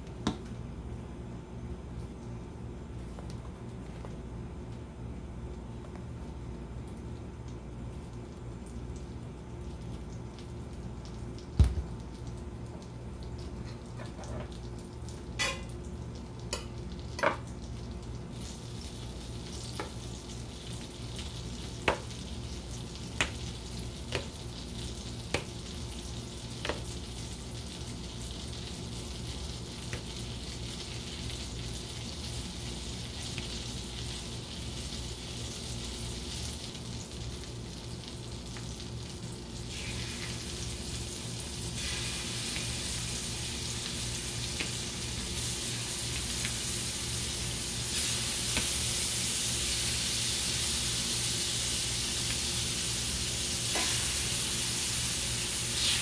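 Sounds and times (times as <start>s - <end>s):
fat sizzling in skillet: 16.5s - 56.0s.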